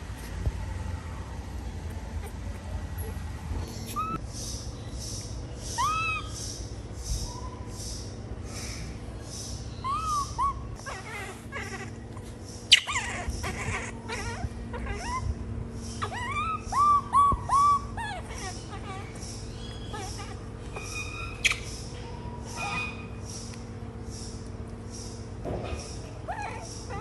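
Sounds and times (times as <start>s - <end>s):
infant monkey coo calls: 3.8s - 4.6s, 5.6s - 23.5s, 25.8s - 27.0s.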